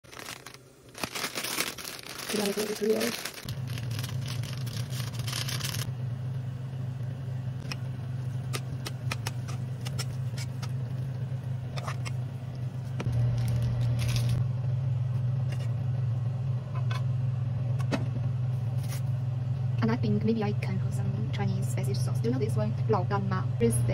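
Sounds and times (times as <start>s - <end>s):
sauce packet rustling: 0.0s - 5.9s
low steady hum: 0.0s - 23.9s
chopsticks scraping metal pot: 9.2s - 10.8s.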